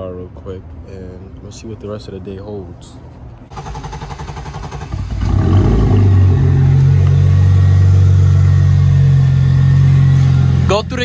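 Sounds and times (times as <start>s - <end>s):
car engine running: 3.5s - 11.0s.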